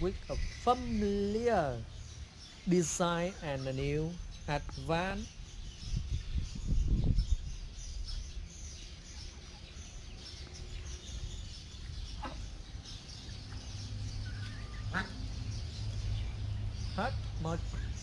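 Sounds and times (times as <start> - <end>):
ducks and chickens calling: 7.3 - 18.0.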